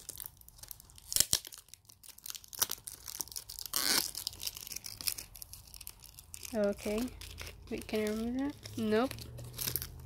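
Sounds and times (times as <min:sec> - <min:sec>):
card ripping: 0:00.0 - 0:10.0
packaging crinkling: 0:00.0 - 0:10.0.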